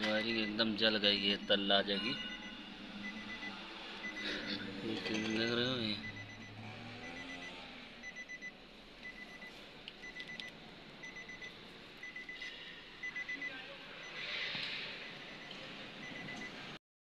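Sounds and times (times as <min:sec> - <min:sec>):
electronic beeper beeping: 0:01.3 - 0:08.5, 0:09.1 - 0:09.5, 0:10.1 - 0:14.4, 0:15.1 - 0:16.5.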